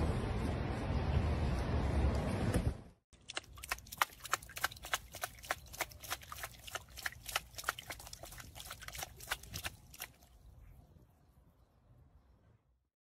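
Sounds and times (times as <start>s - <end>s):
paw splashing water: 3.2s - 10.4s.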